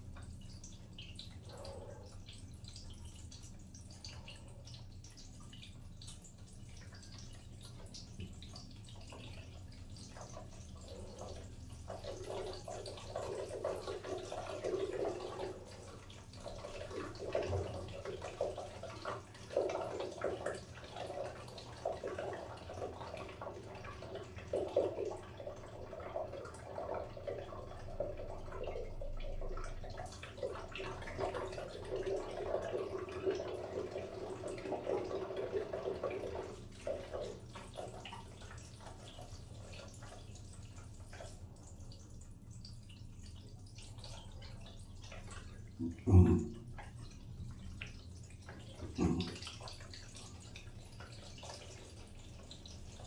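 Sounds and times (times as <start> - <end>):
water dripping in drain pipe: 0.0 - 53.0.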